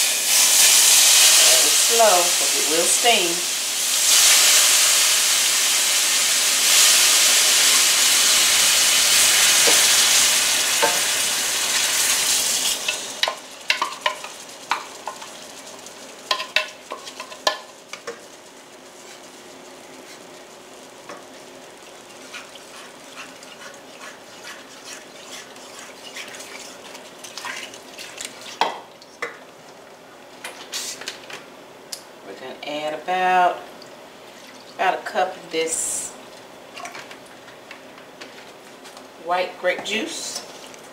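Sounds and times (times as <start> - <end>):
broth sizzling in hot pan: 0.0 - 28.7
wooden spoon scraping pan: 22.1 - 27.8.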